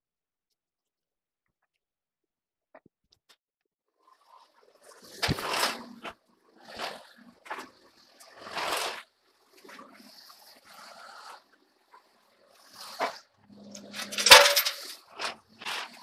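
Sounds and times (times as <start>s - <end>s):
steel column scraping and clanking: 12.8s - 16.0s.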